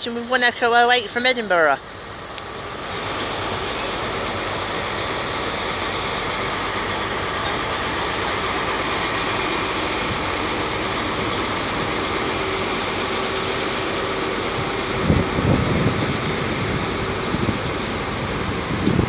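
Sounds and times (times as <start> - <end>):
diesel train engine: 0.0 - 19.0
train rail noise: 0.0 - 19.0.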